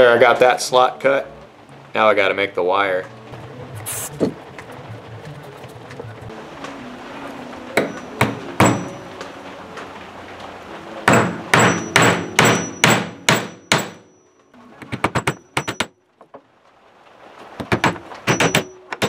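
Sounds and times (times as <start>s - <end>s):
hammer driving nails into wood: 11.1s - 14.0s, 14.9s - 15.9s, 17.6s - 19.0s.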